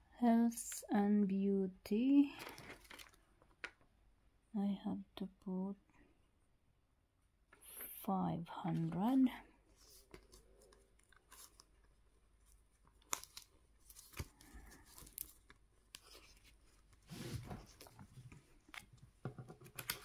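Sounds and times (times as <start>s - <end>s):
paper rustling and crinkling: 2.3s - 3.2s, 8.7s - 20.0s.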